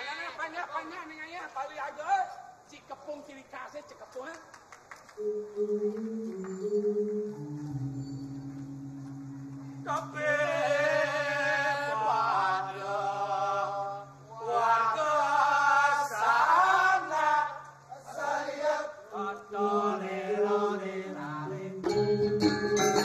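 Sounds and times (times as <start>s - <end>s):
held low notes: 5.2s - 14.5s
steady low drone: 5.2s - 14.6s.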